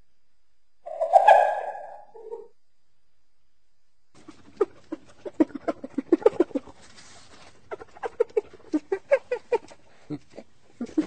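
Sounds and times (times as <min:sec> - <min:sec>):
hyena giggling calls: 0:04.2 - 0:11.0.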